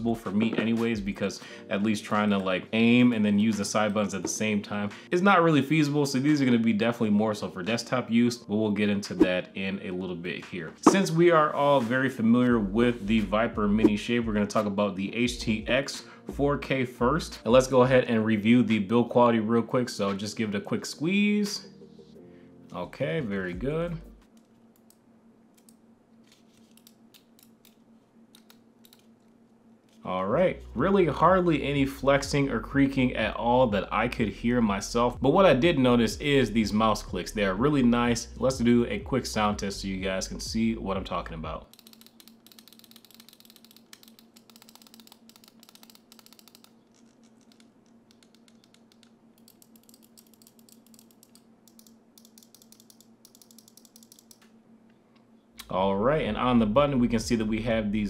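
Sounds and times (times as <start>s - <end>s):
rapid mouse button clicking: 41.7s - 46.8s, 47.4s - 54.4s.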